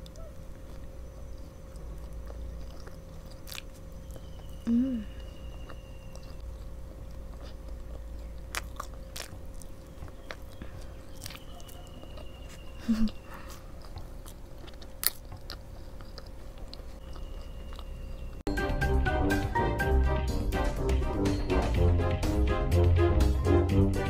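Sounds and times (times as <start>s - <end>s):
sticky chewing mouth sounds: 0.0s - 18.4s
person humming: 4.6s - 5.3s, 12.8s - 13.5s.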